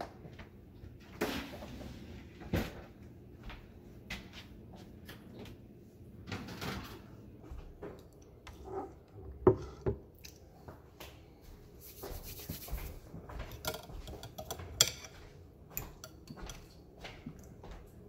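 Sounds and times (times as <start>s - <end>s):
fork clinking on a plate: 13.5s - 16.8s.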